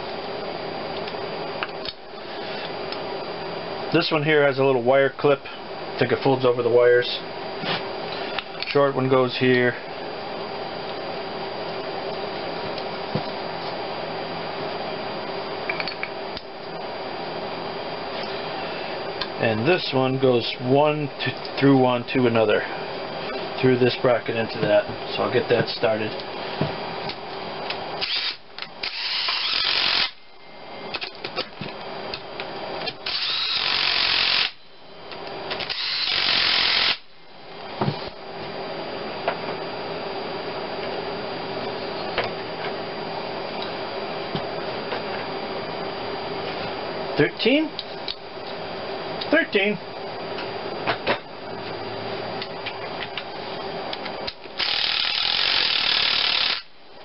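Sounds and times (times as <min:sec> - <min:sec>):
cordless drill driving bolt: 0:28.0 - 0:30.2, 0:35.6 - 0:37.0
power driver running bolts: 0:28.0 - 0:30.2, 0:32.9 - 0:34.6, 0:35.5 - 0:37.0, 0:54.3 - 0:56.7.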